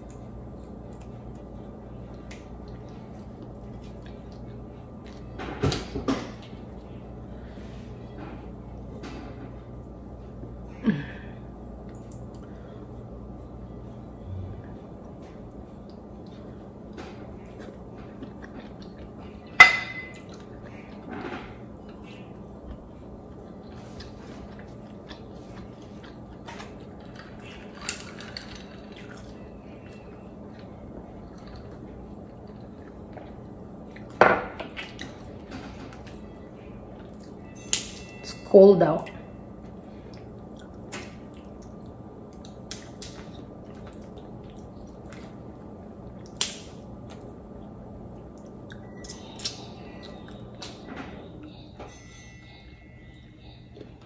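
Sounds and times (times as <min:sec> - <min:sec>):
steady low hum: 0:00.0 - 0:54.0
tableware clicking and tapping: 0:19.6 - 0:20.2.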